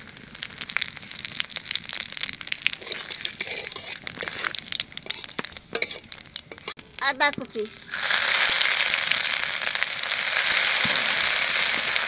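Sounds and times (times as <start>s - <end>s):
spices sizzling in hot oil: 0.0s - 12.0s
metal spatula stirring: 2.7s - 6.8s.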